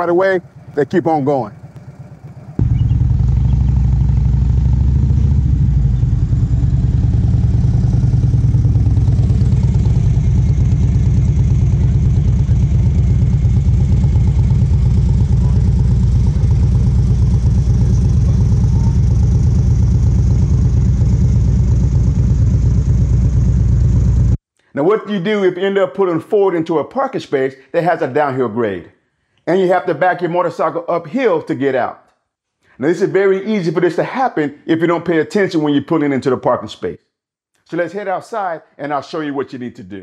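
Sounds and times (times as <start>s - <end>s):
motorcycle engine running: 0.0s - 24.4s.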